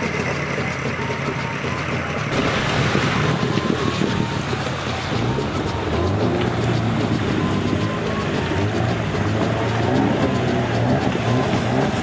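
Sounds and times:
outboard motor running: 0.0 - 12.0
water rushing along hull: 0.0 - 12.0
wind buffeting microphone: 2.3 - 8.7.

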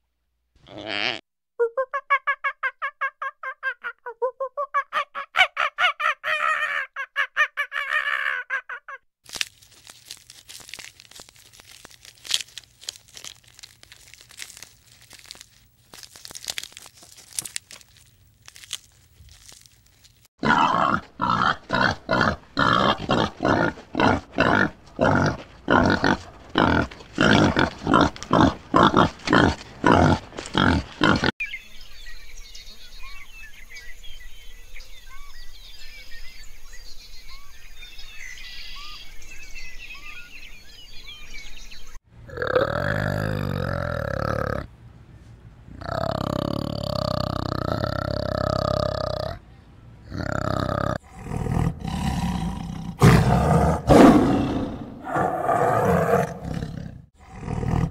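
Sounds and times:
clicks and crackles: 9.3 - 20.3
loud rhythmic animal grunting: 20.4 - 31.3, 42.2 - 44.7, 45.7 - 49.4, 50.0 - 57.9.

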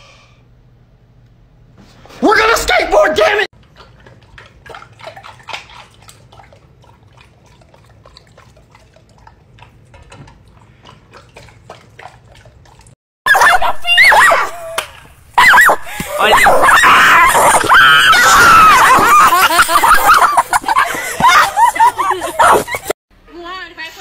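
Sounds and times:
dog lapping water from bowl: 3.6 - 13.0.

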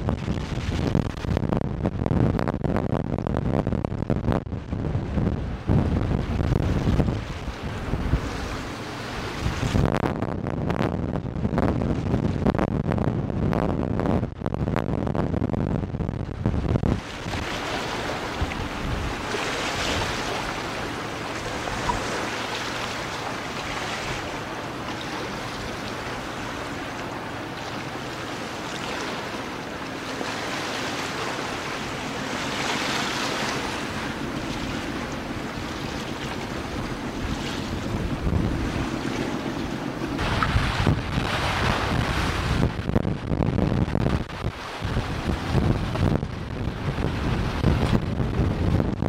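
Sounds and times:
wind buffeting microphone: 0.0 - 49.0
sea waves washing: 4.7 - 10.2, 16.3 - 49.0.

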